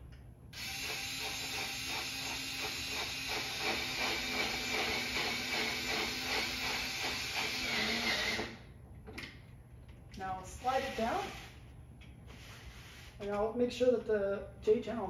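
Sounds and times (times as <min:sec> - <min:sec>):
power drill driving a screw: 0:00.6 - 0:08.6.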